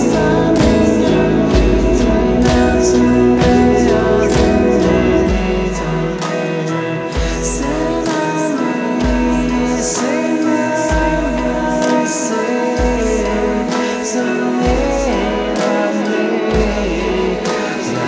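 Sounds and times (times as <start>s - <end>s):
deep bass notes: 0.0s - 6.2s
gliding sustained melody: 0.0s - 18.0s.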